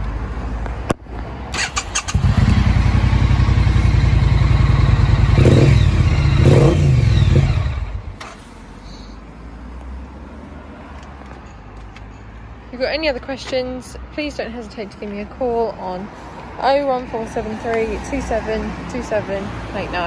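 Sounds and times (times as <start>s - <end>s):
motorcycle engine starting and revving: 1.5s - 8.7s.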